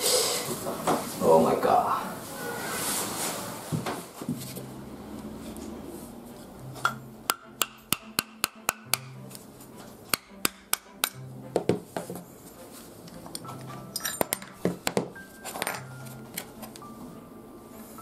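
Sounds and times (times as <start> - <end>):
hammer tapping wood: 7.3 - 9.2, 10.1 - 12.0.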